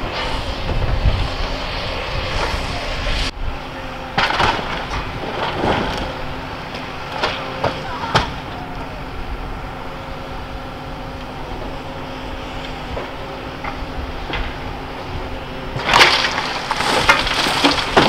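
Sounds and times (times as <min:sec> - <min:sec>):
excavator engine running: 0:00.0 - 0:18.0
debris crunching and cracking: 0:15.7 - 0:18.0.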